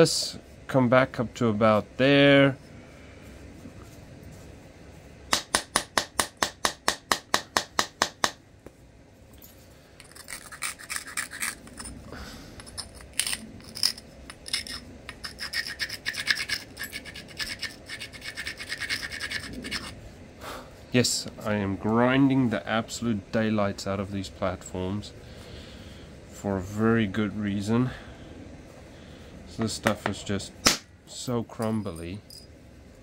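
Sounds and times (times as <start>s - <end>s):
stone scraping flint: 10.0s - 20.0s.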